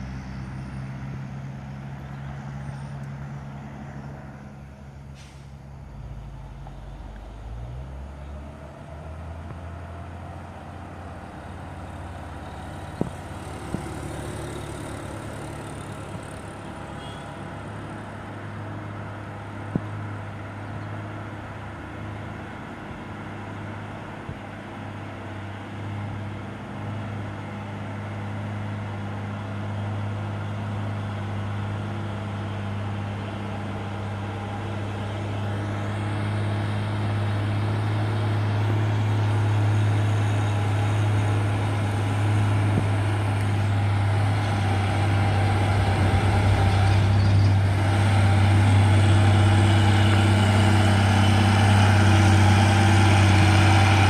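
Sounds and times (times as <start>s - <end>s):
truck diesel engine running: 4.9s - 20.3s, 29.3s - 54.0s.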